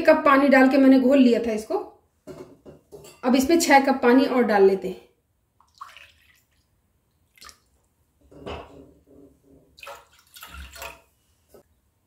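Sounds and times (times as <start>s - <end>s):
water pouring and splashing: 5.6s - 7.8s, 9.7s - 11.2s.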